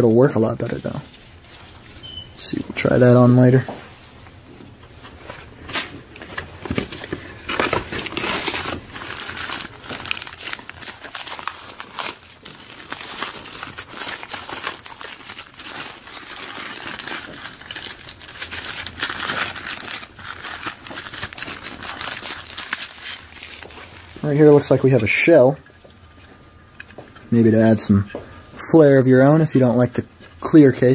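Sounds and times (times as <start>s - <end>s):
wrapper crinkling and rustling: 5.0s - 27.8s.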